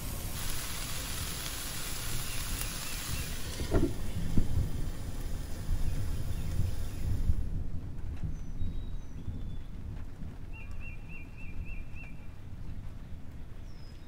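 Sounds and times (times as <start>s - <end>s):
potatoes sizzling in oil: 0.0s - 7.4s.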